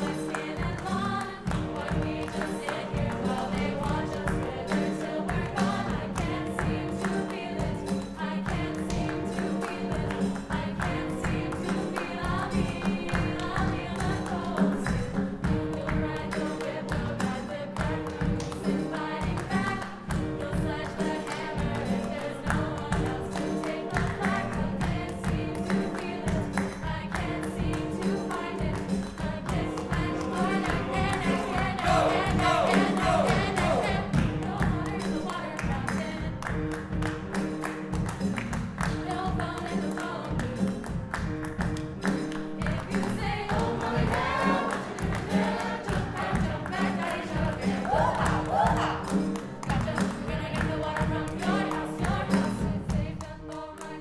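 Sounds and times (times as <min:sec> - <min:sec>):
choir singing pop song: 0:00.0 - 0:37.0, 0:38.1 - 0:41.4, 0:42.5 - 0:54.0
hand claps: 0:00.0 - 0:54.0
drums beat: 0:00.1 - 0:53.2.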